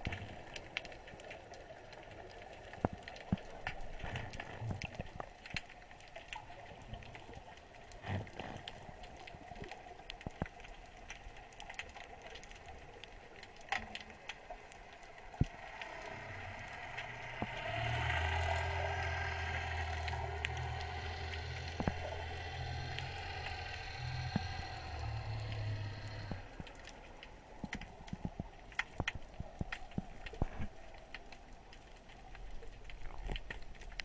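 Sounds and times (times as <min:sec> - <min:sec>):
underwater clicks and crackles: 0:00.0 - 0:34.0
low motor hum: 0:14.6 - 0:28.5.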